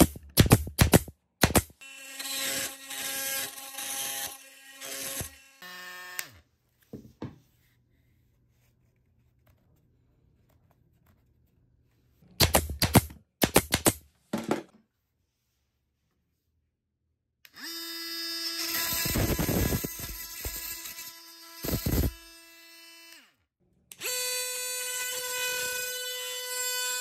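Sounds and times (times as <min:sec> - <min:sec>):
multi-tool grinding buzz: 0:01.4 - 0:06.4, 0:17.4 - 0:27.0.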